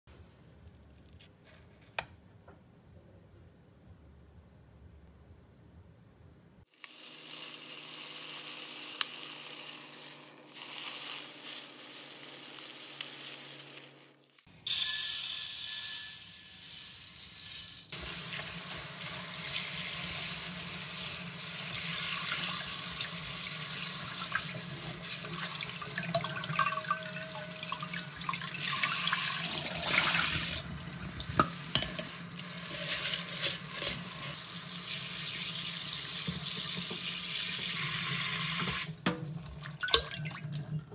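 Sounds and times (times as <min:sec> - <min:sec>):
tap water running into sink: 0:21.7 - 0:40.9
hands swishing beans in water: 0:32.4 - 0:34.5.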